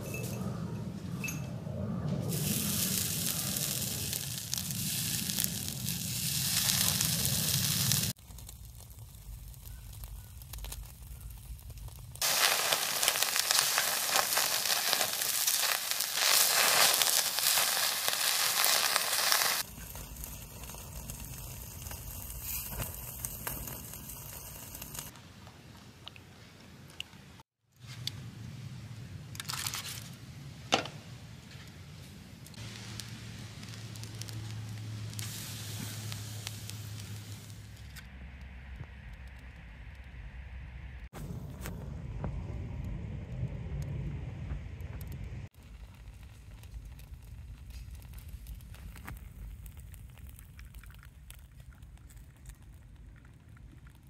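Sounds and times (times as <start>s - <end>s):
food sizzling over fire: 2.3s - 25.2s, 32.5s - 38.0s, 45.4s - 54.0s
low hum: 37.7s - 45.8s.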